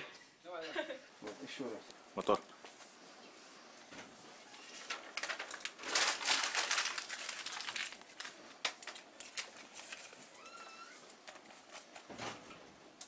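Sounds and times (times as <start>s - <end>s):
paper rustling and crinkling: 4.4s - 12.4s.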